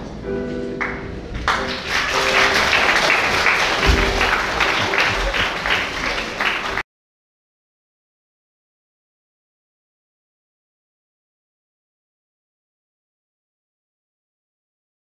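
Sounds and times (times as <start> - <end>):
audience applause: 0.8 - 6.8.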